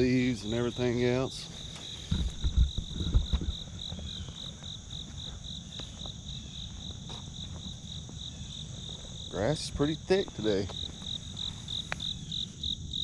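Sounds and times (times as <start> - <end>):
high insect buzz: 0.0 - 13.0
insects chirping: 0.0 - 13.0
low thumps: 2.1 - 4.0.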